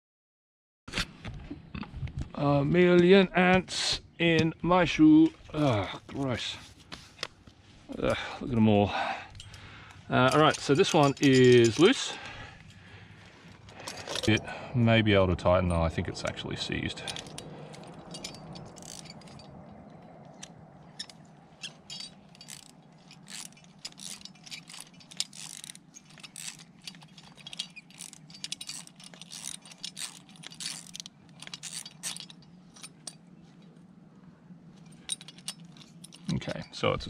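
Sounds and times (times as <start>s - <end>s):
metal clicks and jangles: 9.3s - 12.8s, 13.7s - 14.5s, 15.7s - 33.7s, 34.7s - 36.9s.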